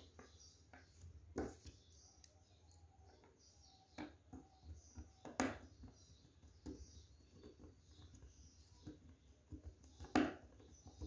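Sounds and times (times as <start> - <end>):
faint clicks and taps of wires: 3.9 - 11.0.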